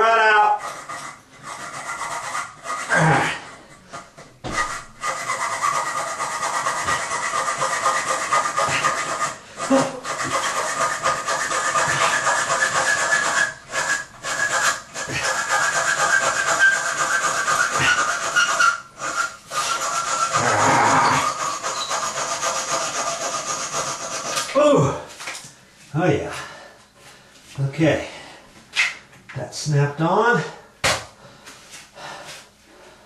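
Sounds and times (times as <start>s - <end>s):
saw blade rasping through metal bolt: 4.6s - 24.5s.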